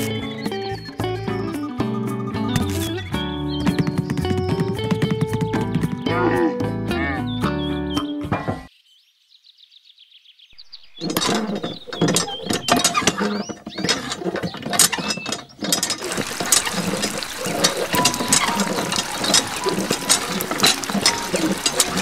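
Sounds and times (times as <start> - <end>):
water stream splashing: 10.6 - 13.3, 15.6 - 22.0
hand pump clicking and squeaking: 10.6 - 22.0.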